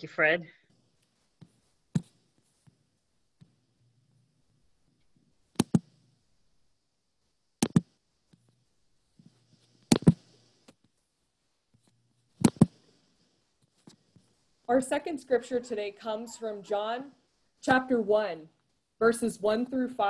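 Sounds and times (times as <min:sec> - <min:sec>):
faint low hum: 0:00.0 - 0:20.0
computer mouse double clicks: 0:05.6 - 0:05.8.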